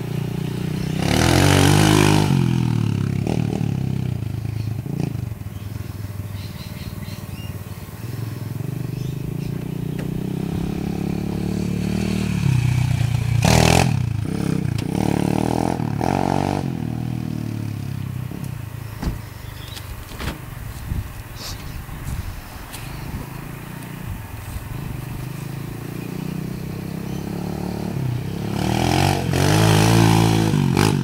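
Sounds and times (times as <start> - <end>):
motorbike engine revving past: 0.0 - 5.5, 6.4 - 18.4, 24.4 - 31.0.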